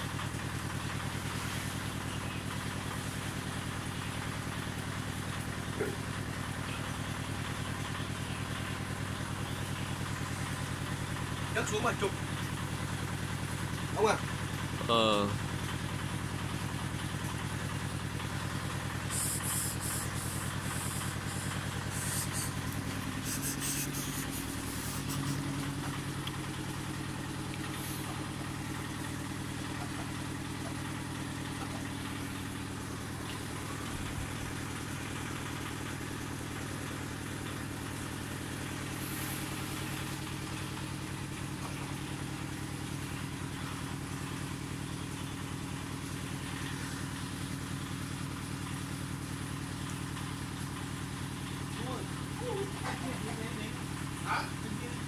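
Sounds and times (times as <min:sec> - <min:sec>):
motor humming: 0:18.2 - 0:34.9
short scratchy noises: 0:19.1 - 0:25.6.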